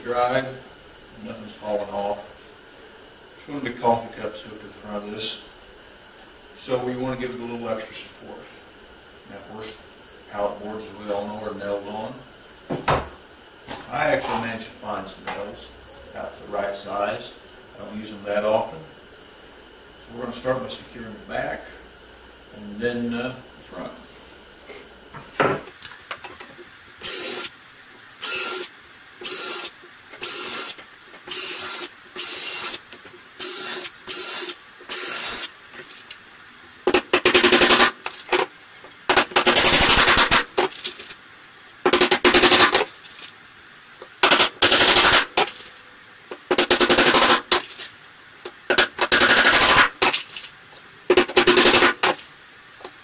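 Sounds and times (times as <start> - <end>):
cordless power drill bursts: 27.0 - 27.6, 28.2 - 32.8, 33.4 - 35.5.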